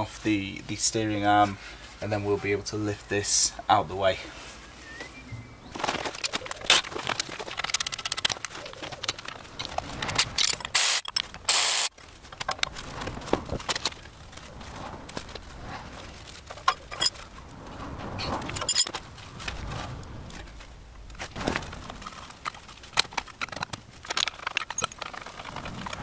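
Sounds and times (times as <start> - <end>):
metal parts clinking: 5.8 - 12.8, 16.4 - 17.3, 18.3 - 19.0, 22.0 - 26.0.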